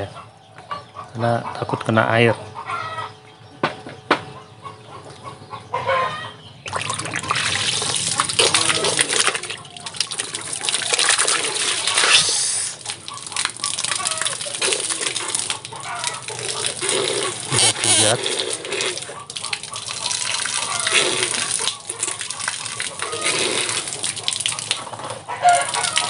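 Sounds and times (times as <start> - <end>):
water jet splashing into bucket: 6.7 - 26.0.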